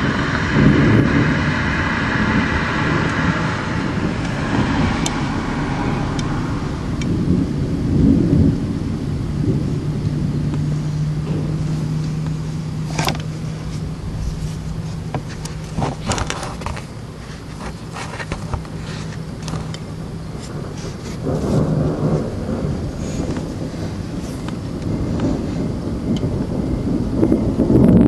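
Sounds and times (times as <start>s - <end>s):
steady low hum: 0.0s - 28.0s
thunder rumbling: 0.0s - 28.0s
sharp ticks and clicks: 6.1s - 7.3s, 26.1s - 26.8s.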